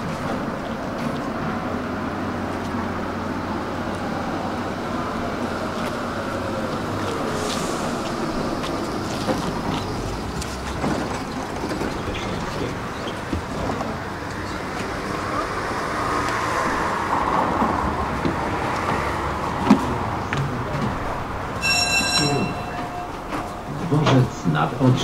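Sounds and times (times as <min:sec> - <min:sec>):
street and vehicle noise: 0:00.0 - 0:25.0
door warning beep: 0:21.6 - 0:24.3.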